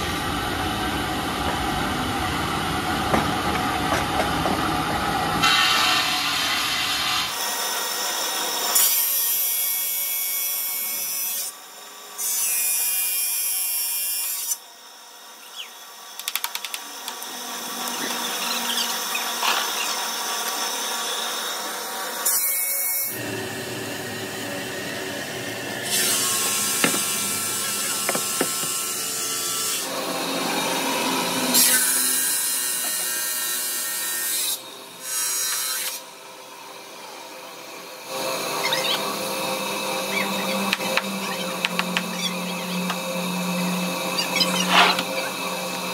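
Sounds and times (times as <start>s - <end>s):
saw blade grinding stone: 17.2s - 21.4s, 31.4s - 36.0s, 38.1s - 45.9s.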